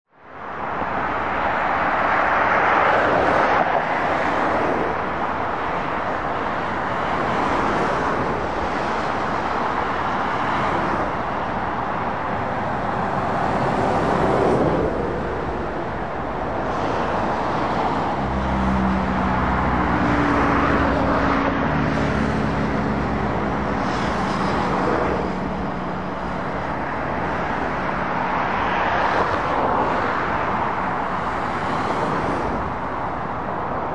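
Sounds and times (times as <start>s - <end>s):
tyre noise of passing vehicles: 0.1s - 33.9s
lorry diesel engine drone: 4.5s - 28.4s.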